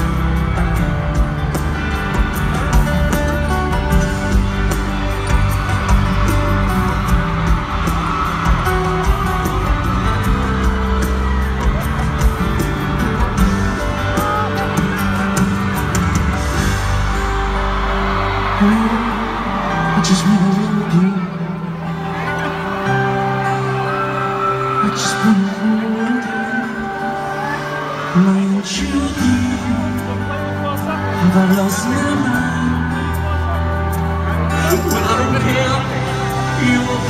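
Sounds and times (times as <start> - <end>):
loud live pop music: 0.0 - 37.0
drum beat: 0.5 - 17.5.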